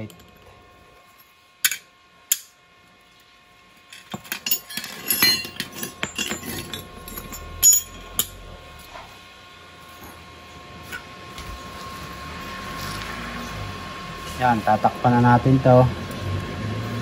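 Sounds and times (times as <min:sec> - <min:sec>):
steel parts clinking on concrete: 0:01.6 - 0:02.5, 0:03.9 - 0:08.9.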